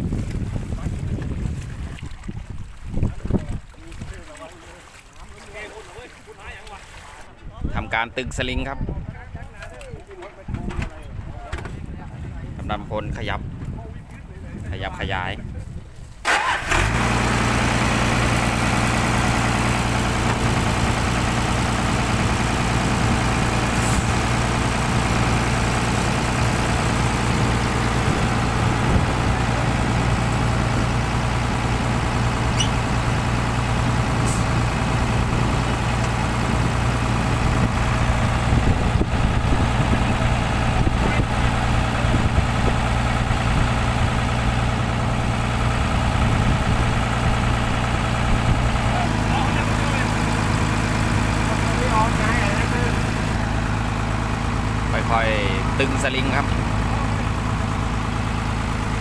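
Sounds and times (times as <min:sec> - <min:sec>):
engine idling: 0:16.3 - 0:59.0.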